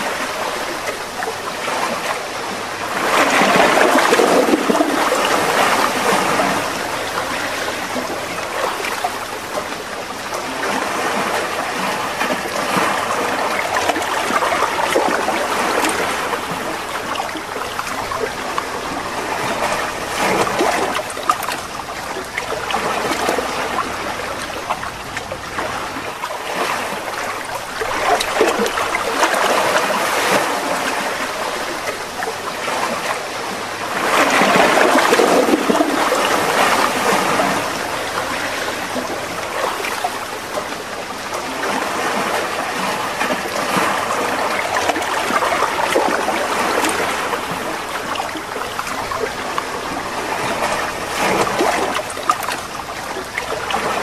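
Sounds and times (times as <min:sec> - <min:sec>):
waves washing on beach: 0:00.0 - 0:54.0.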